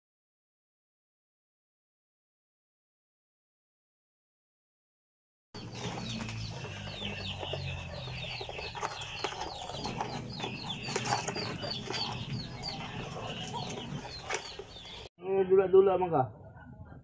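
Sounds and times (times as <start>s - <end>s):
birds chirping: 5.6s - 15.1s.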